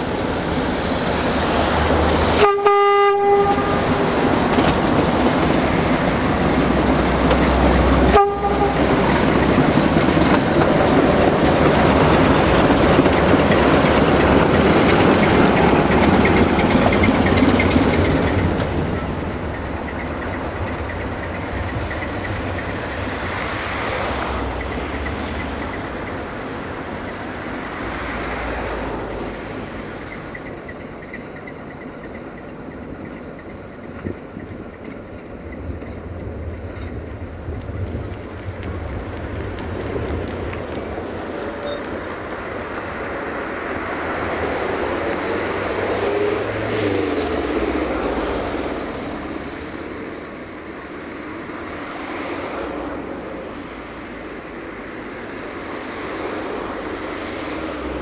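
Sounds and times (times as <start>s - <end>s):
diesel locomotive engine running: 0.0s - 58.0s
locomotive horn blasts: 2.3s - 4.1s, 8.0s - 9.1s.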